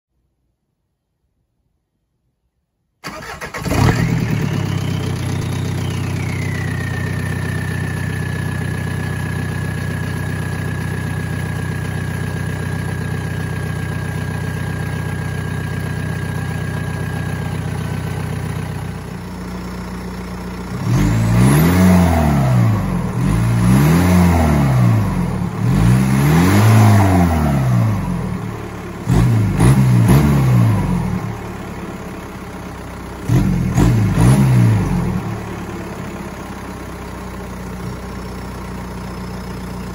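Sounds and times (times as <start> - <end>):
engine revving: 3.0 - 11.2, 20.6 - 31.8, 33.1 - 37.1
diesel engine starting and idling: 3.0 - 39.9
high whine: 4.2 - 11.2.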